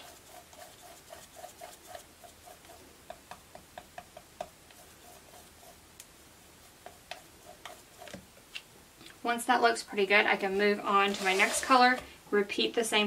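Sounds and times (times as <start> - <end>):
paintbrush strokes on wood: 0.0 - 2.9, 4.4 - 8.2, 10.5 - 11.9.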